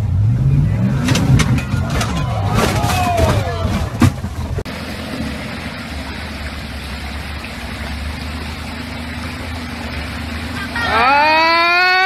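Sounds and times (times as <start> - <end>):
car engine running at low revs: 0.0 - 12.0
stream water rushing: 4.3 - 12.0.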